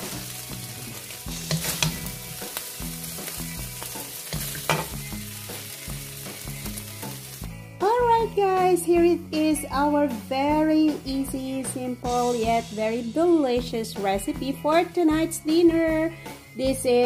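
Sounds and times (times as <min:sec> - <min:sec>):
spatula scraping a wok: 0:00.0 - 0:07.4
food sizzling: 0:00.0 - 0:09.0.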